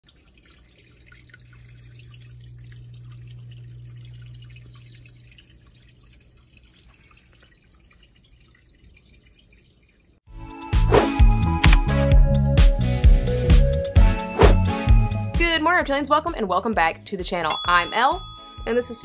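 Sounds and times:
water dripping: 0.0s - 10.3s.

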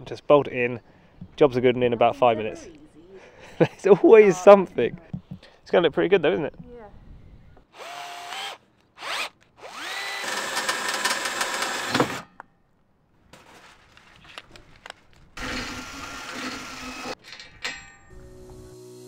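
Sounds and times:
cordless drill whining: 7.7s - 12.2s, 15.4s - 17.2s
drill boring through steel: 7.7s - 12.2s, 15.4s - 17.2s.

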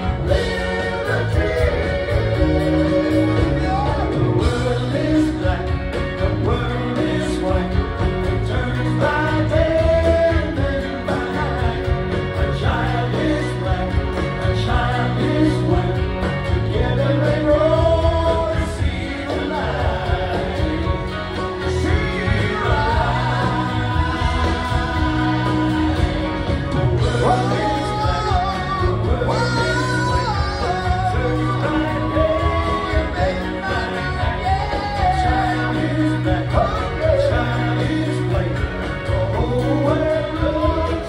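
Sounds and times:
live rock band playing: 0.0s - 41.0s
person singing lead vocals: 0.0s - 41.0s.

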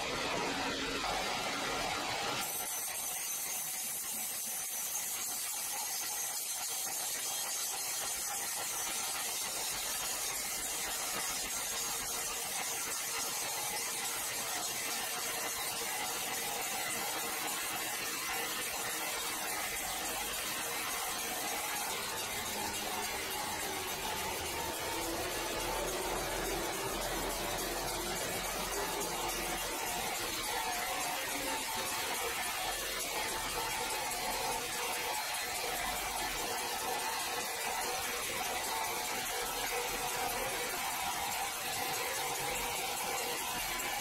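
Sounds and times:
saw blade cutting log: 19.1s - 34.3s.

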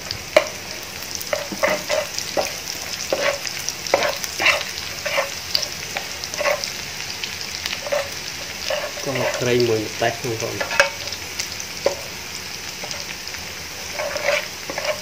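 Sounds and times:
food sizzling in hot oil: 0.0s - 15.0s
metal spatula scraping pan: 1.2s - 6.7s, 7.7s - 9.7s, 10.6s - 11.2s, 12.8s - 13.1s, 13.8s - 15.0s.

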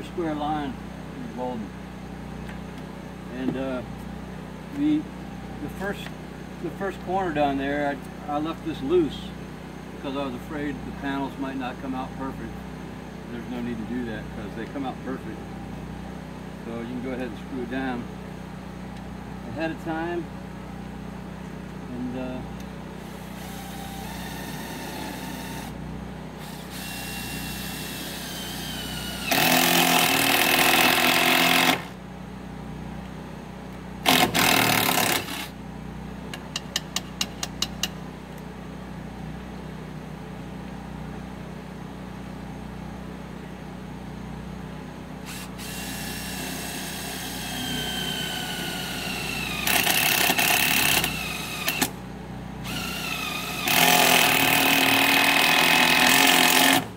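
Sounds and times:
impact driver driving screws: 34.1s - 35.5s, 45.3s - 52.0s.

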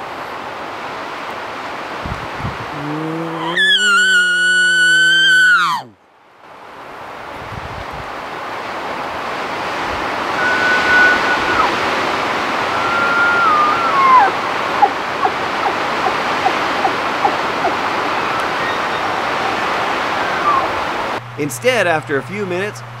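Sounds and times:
elk bugling: 2.6s - 6.0s, 9.8s - 21.2s
steady rushing noise: 6.6s - 21.3s.

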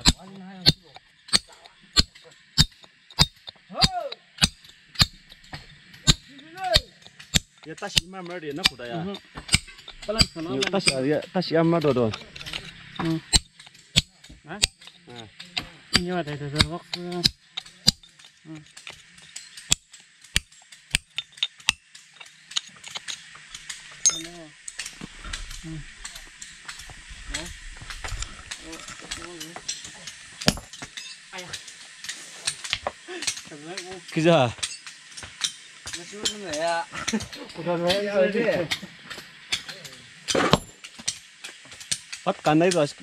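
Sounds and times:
people talking: 0.0s - 2.4s, 3.7s - 4.2s, 6.3s - 6.9s, 7.6s - 9.3s, 10.0s - 13.3s, 14.0s - 17.3s, 18.5s - 18.7s, 24.1s - 24.6s, 25.6s - 26.2s, 27.3s - 27.6s, 28.2s - 30.1s, 31.4s - 31.6s, 33.0s - 34.6s, 36.0s - 38.8s, 39.6s - 40.1s, 42.3s - 43.0s
sharp tool knocks: 0.0s - 11.0s, 30.4s - 31.0s
steady high hiss: 0.0s - 43.0s.

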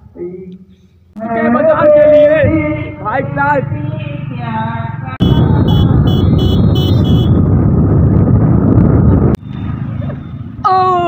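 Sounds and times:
quiet street background: 0.0s - 11.0s
motorcycle engine: 3.7s - 9.9s
wind rush on microphone: 5.2s - 10.0s.

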